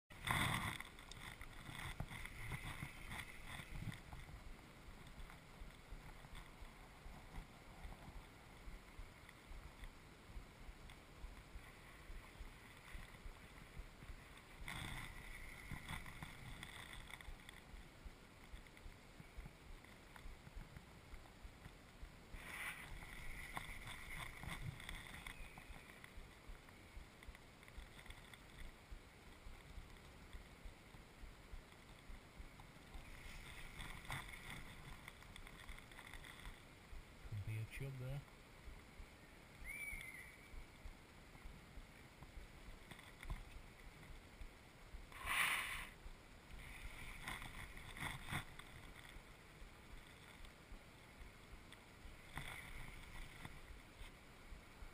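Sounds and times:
clothing rustling against camera: 0.1 - 4.4
small ticks: 0.2 - 54.9.

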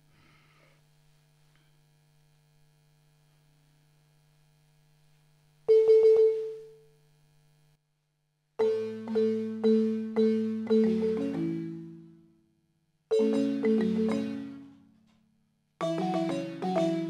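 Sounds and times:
faint steady hum: 0.0 - 17.0
mallet strikes on a xylophone: 8.6 - 12.0, 13.1 - 14.7, 15.8 - 17.0.

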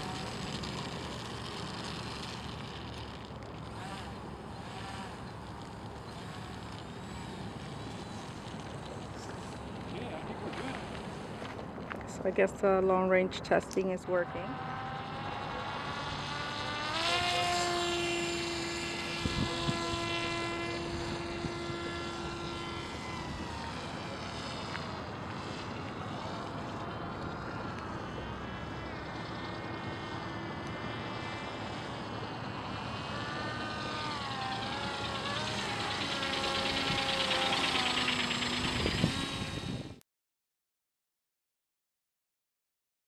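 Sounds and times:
model aircraft motor whining: 0.0 - 40.0.

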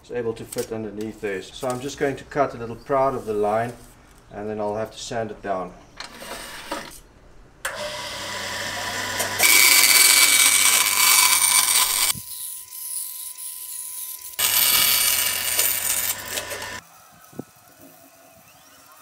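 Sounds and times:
bandsaw motor hum: 7.6 - 16.8
bandsaw blade cutting wood: 7.7 - 16.8.

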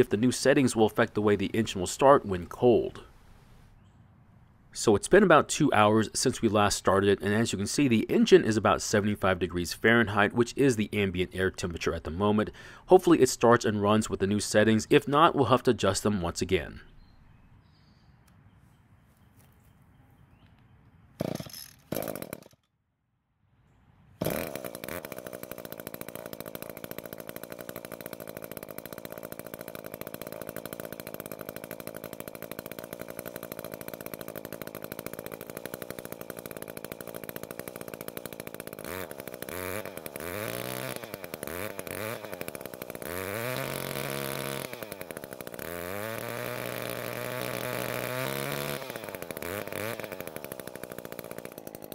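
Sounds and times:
small two-stroke engine running: 0.0 - 3.1, 21.2 - 22.6, 24.2 - 51.9
short bursts of engine noise: 0.0 - 3.7, 4.8 - 16.9, 24.2 - 51.9.

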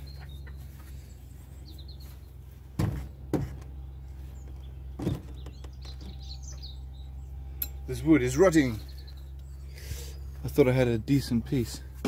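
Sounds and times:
small birds chirping: 0.0 - 12.0
steady low hum: 0.0 - 12.0
knocks on wooden beam: 2.8 - 3.7.

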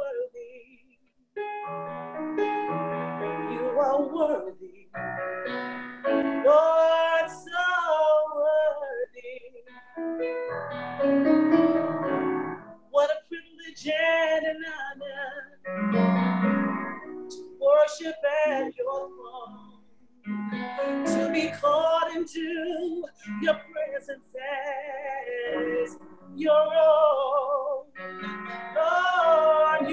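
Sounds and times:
instrumental accompaniment: 1.4 - 7.4, 9.7 - 12.9, 15.6 - 17.6, 19.5 - 24.0, 25.5 - 29.9.

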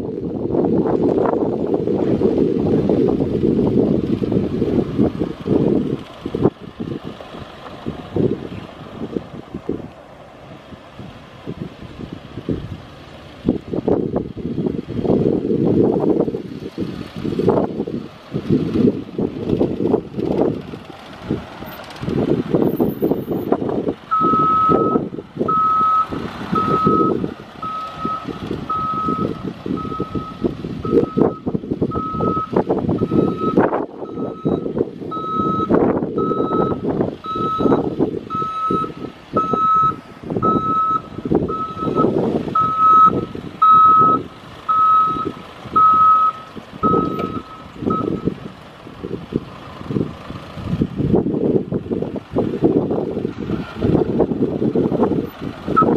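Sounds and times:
wind buffeting microphone: 0.0 - 55.9
truck backup alarm beeping: 24.1 - 48.4.

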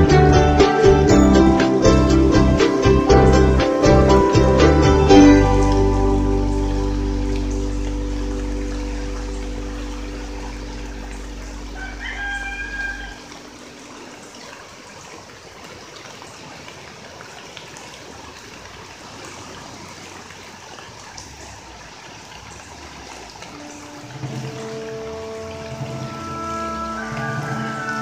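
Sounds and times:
background music: 0.0 - 13.8, 23.6 - 28.0
rushing floodwater: 0.0 - 28.0.

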